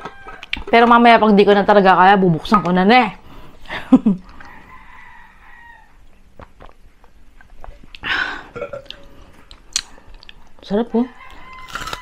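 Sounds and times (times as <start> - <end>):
distant rooster crowing: 0.0 - 0.6, 4.4 - 6.0, 11.0 - 12.0.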